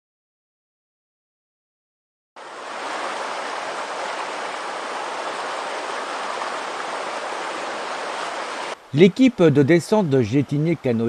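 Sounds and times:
river rapids rushing: 0:02.4 - 0:08.8.

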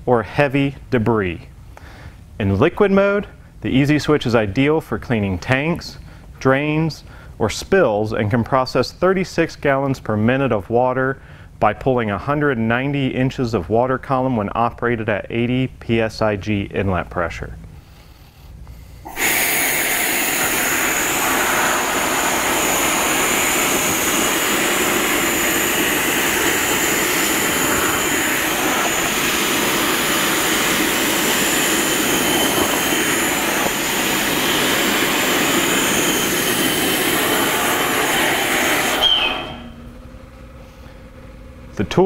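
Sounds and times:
vacuum sucking air and water: 0:19.0 - 0:39.8.

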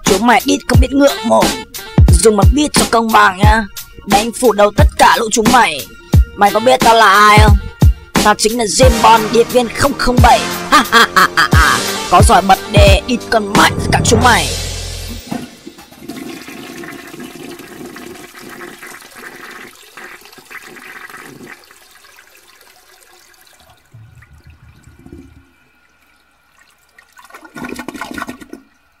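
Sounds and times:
water rushing and gurgling: 0:23.0 - 0:25.8.

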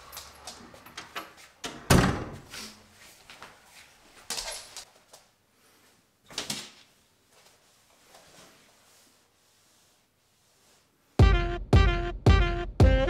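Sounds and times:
wooden door banging shut: 0:01.7 - 0:02.4
shirt rustling: 0:06.7 - 0:11.2.

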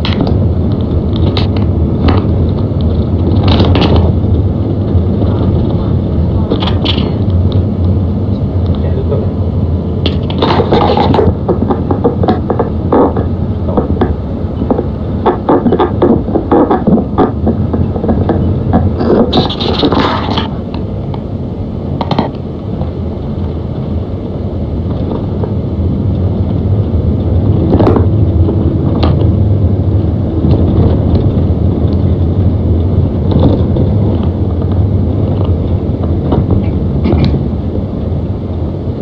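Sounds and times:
vehicle engine and tyres rumbling: 0:00.0 - 0:39.0
sharp knocks: 0:10.0 - 0:20.5.

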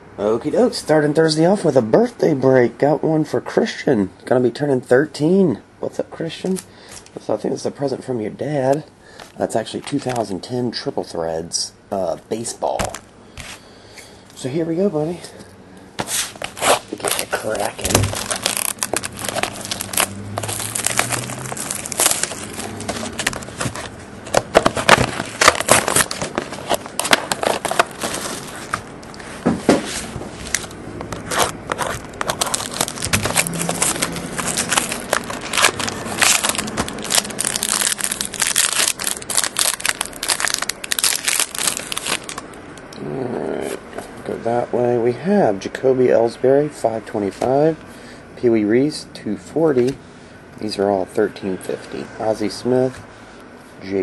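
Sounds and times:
plastic shrink-wrap crinkling: 0:16.3 - 0:29.1, 0:30.5 - 0:42.5.

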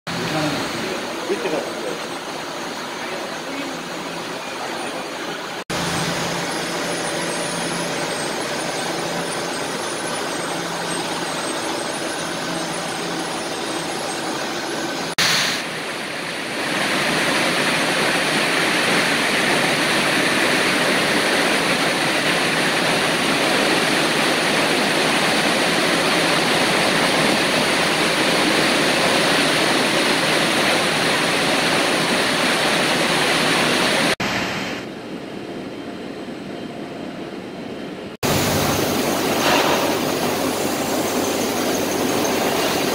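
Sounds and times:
factory machinery running: 0:00.1 - 0:42.9
weaving looms running: 0:02.9 - 0:15.2, 0:38.2 - 0:42.9.

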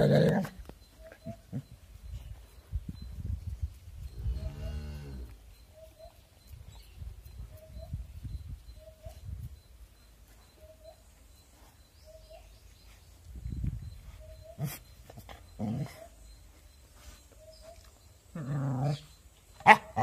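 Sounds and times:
dog growling: 0:18.3 - 0:19.1.

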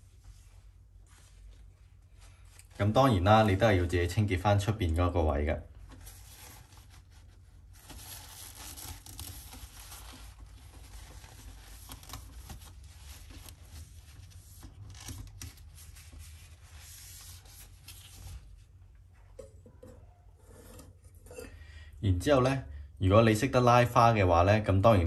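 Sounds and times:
paper towel rustling and rubbing: 0:00.0 - 0:19.2
small taps and scrapes: 0:19.2 - 0:21.2.

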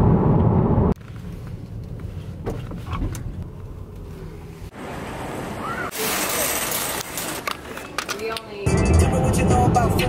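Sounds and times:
low road rumble: 0:00.0 - 0:10.0.

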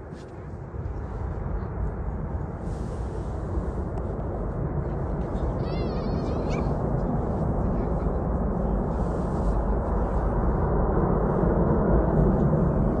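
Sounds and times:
distant jet engines rushing: 0:00.0 - 0:13.0.

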